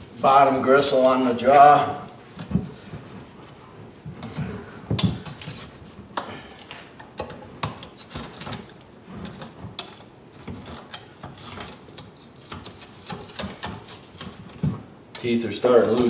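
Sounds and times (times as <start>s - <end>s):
knife scraping bone: 5.2s - 14.6s.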